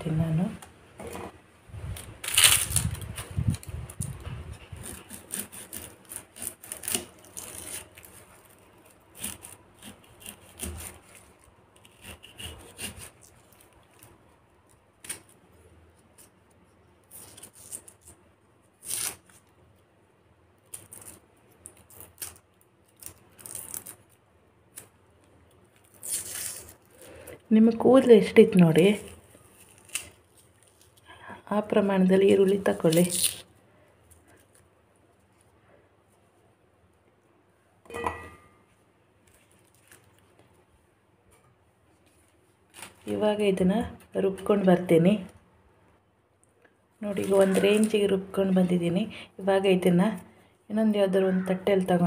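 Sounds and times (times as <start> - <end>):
knife cutting onion: 2.2 - 8.4, 9.1 - 14.1.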